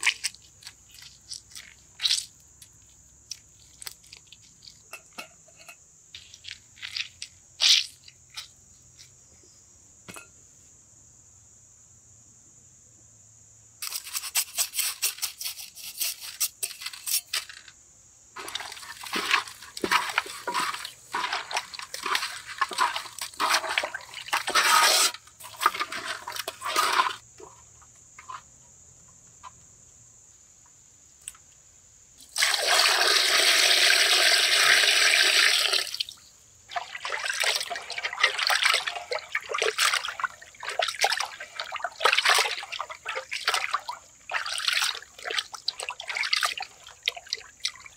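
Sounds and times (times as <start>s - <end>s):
water pouring: 18.4s - 27.5s, 32.3s - 47.9s
water splashing and sloshing: 18.4s - 28.4s, 36.7s - 47.9s.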